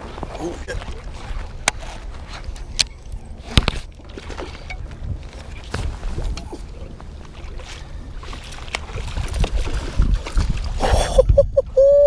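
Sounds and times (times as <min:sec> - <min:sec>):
wind rumbling on microphone: 0:00.0 - 0:12.0
landing net splashing into water: 0:07.2 - 0:11.1.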